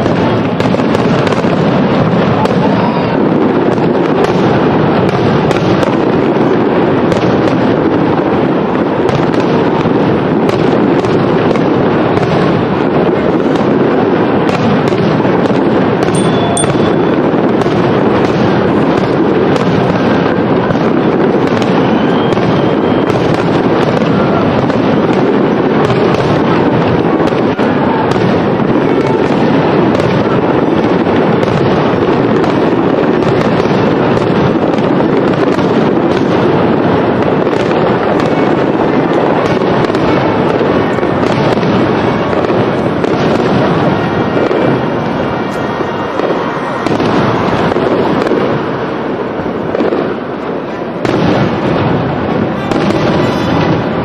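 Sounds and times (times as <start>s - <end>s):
firework shells bursting: 3.4s - 27.6s.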